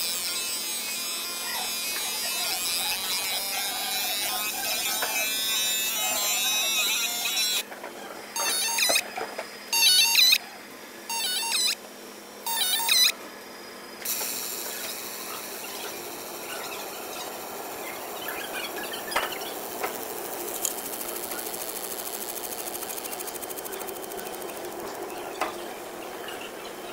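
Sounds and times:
laser marking head buzzing: 0.0s - 7.7s, 8.4s - 9.1s, 9.7s - 10.4s, 11.1s - 11.8s, 12.4s - 13.2s, 14.0s - 25.7s
high-pitched whine with hiss: 12.4s - 26.9s.

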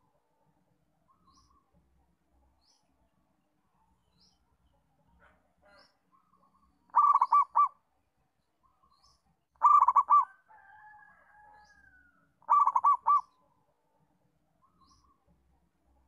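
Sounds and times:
dove cooing: 6.9s - 7.8s, 9.6s - 10.4s, 12.4s - 13.4s.

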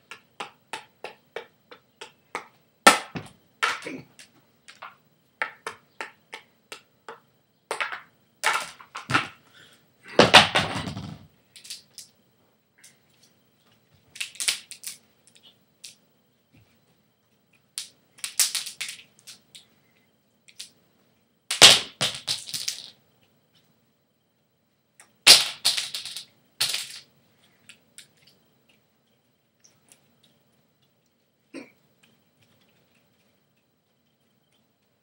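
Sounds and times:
juggling clubs smacking into hands: 0.0s - 9.4s.

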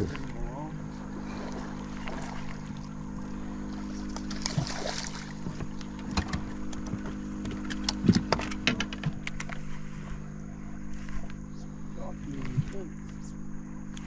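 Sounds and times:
water splashing: 0.0s - 8.6s
boat motor humming: 0.0s - 14.0s.

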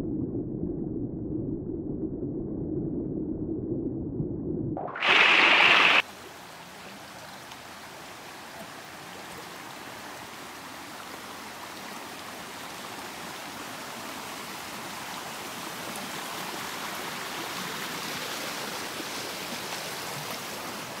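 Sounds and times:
mountain stream rushing over rocks: 4.9s - 21.0s.

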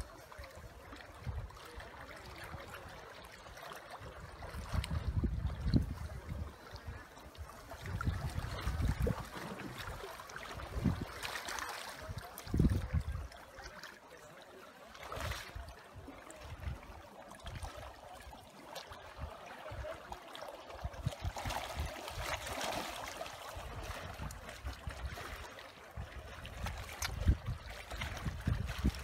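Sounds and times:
small waves lapping on rocks: 0.0s - 29.0s
wind gusts on microphone: 4.3s - 11.2s, 12.0s - 13.3s, 26.0s - 29.0s.

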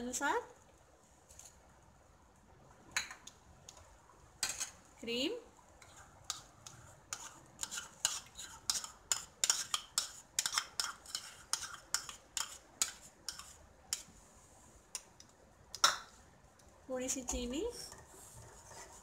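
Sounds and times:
spoon scraping a bowl: 5.8s - 14.1s.

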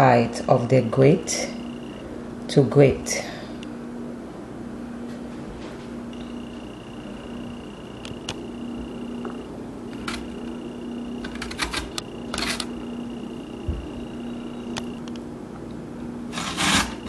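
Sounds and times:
steady hum: 0.0s - 17.0s
scrape on grater: 16.3s - 17.0s.

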